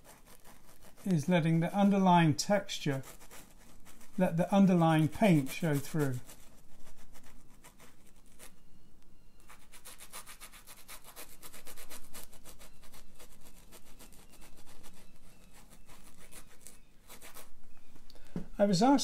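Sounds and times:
paintbrush scrubbing canvas: 0.0s - 8.6s, 9.4s - 17.7s.

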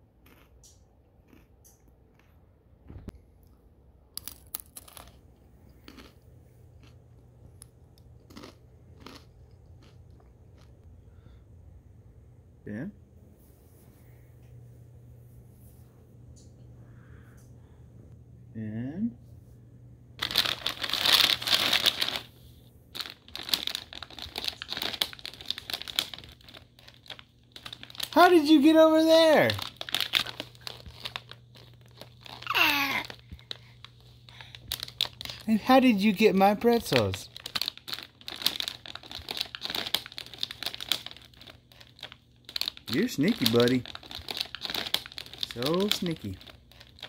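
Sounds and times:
pretzel crunching: 20.2s - 22.3s, 22.9s - 47.0s
plastic bag crinkling: 20.2s - 47.0s.

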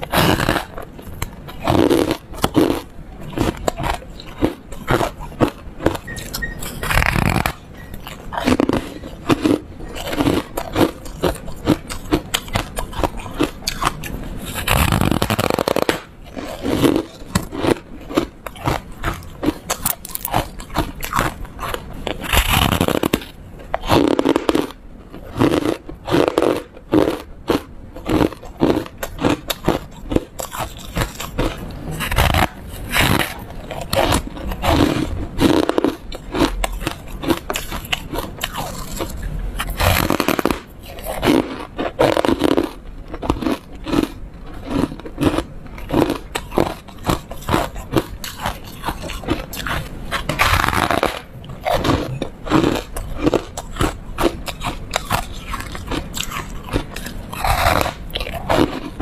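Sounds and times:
crunchy foam ice chewing: 0.0s - 59.0s.

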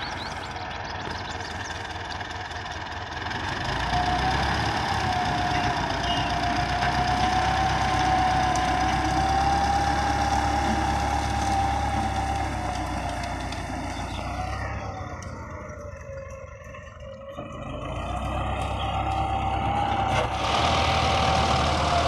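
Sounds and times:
tractor diesel engine under load: 0.0s - 22.0s.

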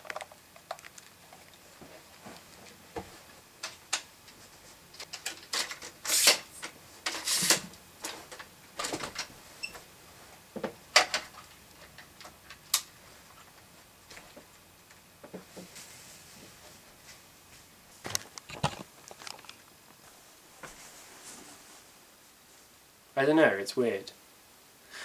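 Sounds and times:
scraping rustles: 17.9s - 22.7s
camera and tripod handling noise: 18.1s - 19.8s.

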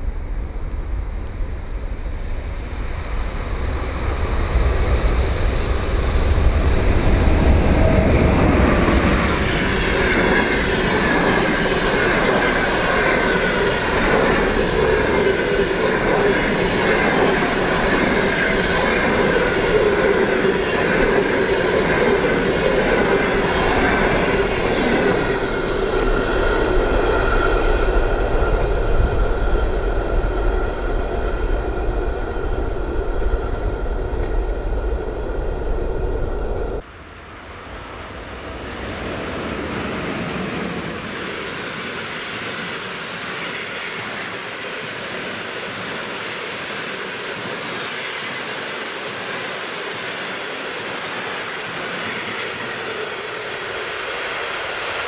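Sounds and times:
train rushing past: 0.0s - 55.0s
wheels whining on rails: 0.0s - 55.0s
wheels clickety-clack over rail joints: 41.9s - 55.0s.

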